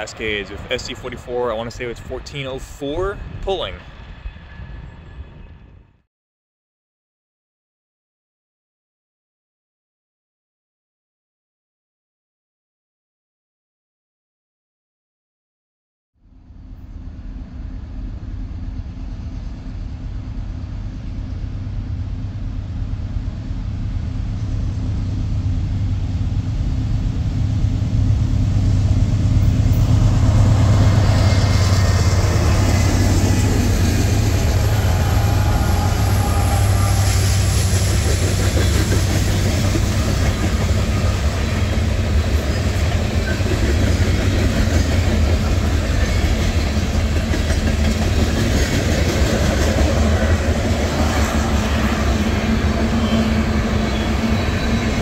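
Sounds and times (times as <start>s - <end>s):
train rolling past: 0.0s - 6.1s, 16.2s - 55.0s.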